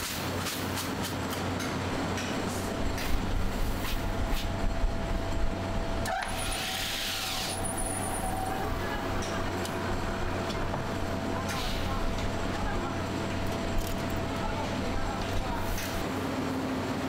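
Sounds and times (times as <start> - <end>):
factory machinery hum: 0.0 - 17.0
hiss: 6.4 - 7.6.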